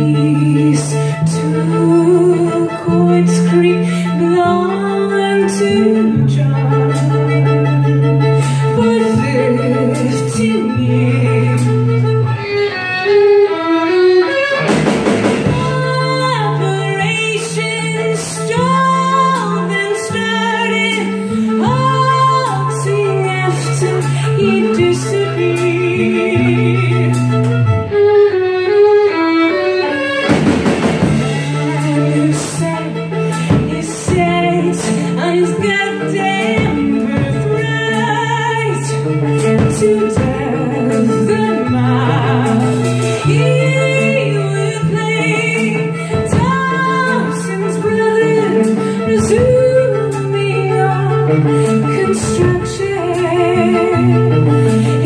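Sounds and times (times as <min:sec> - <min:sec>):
woman singing: 0:00.0 - 0:12.6, 0:15.3 - 0:27.8, 0:31.0 - 0:55.0
bowed violins: 0:00.0 - 0:55.0
electric bass guitar: 0:00.0 - 0:55.0
drums keeping a beat: 0:14.4 - 0:27.7, 0:29.9 - 0:55.0.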